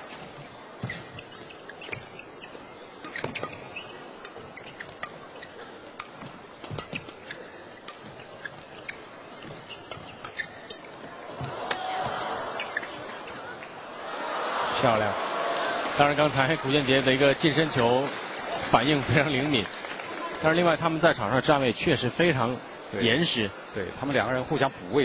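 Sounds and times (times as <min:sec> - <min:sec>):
shoes squeaking on court floor: 0:00.0 - 0:13.8
racket hitting shuttlecock: 0:09.4 - 0:13.0.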